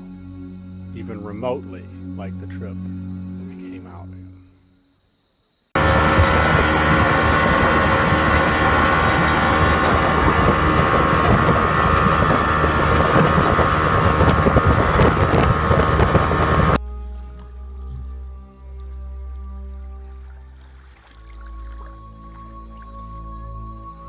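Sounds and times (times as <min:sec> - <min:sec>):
quiet music: 0:00.0 - 0:04.7, 0:05.9 - 0:24.0
motorboat engine rushing: 0:05.8 - 0:16.8
wind on microphone: 0:05.8 - 0:16.8.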